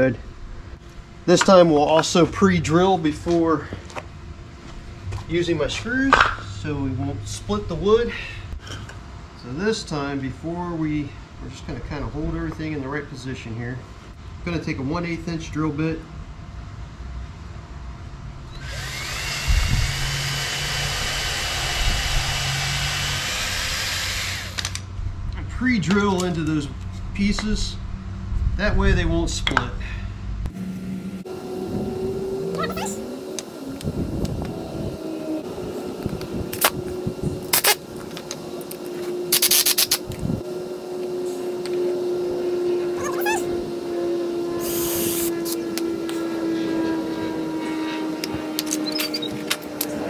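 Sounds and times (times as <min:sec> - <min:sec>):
power drill drilling into wood: 0:18.6 - 0:24.8, 0:44.6 - 0:45.3.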